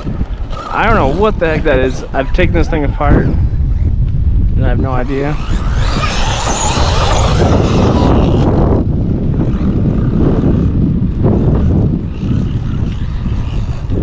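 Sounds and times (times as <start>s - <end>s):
rc truck motor rushing: 0.0s - 2.2s, 4.9s - 14.0s.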